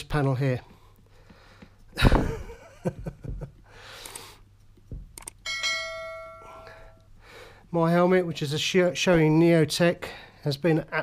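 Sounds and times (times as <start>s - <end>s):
notification bell chime: 5.5s - 6.8s.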